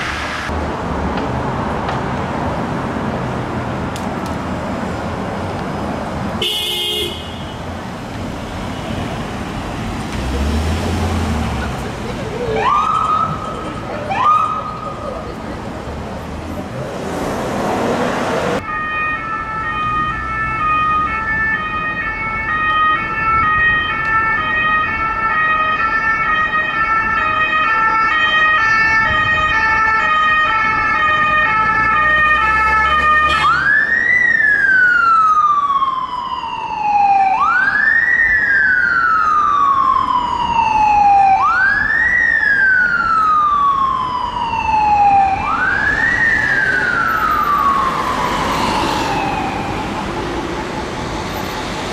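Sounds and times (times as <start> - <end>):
ambulance siren: 12.3 - 15.3, 18.6 - 51.9.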